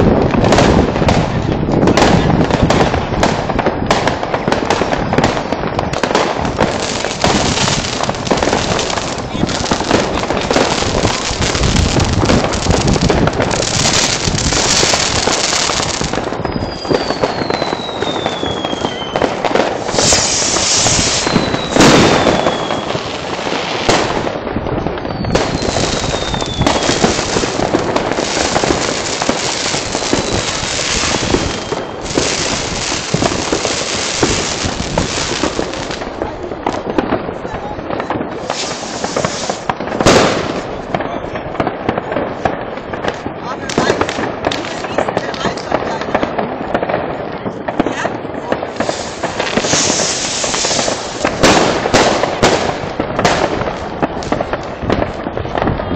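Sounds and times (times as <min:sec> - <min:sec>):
loud firework bang: 0:00.0 - 0:24.4, 0:37.9 - 0:45.1, 0:48.7 - 0:55.9
fireworks crackling bangs: 0:00.0 - 0:55.9
whistling fireworks: 0:00.0 - 0:55.9.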